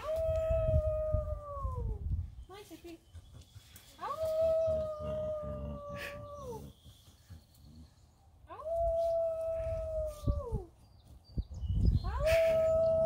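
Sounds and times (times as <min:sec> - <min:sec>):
wolf howling: 0:00.0 - 0:01.9, 0:04.0 - 0:06.8.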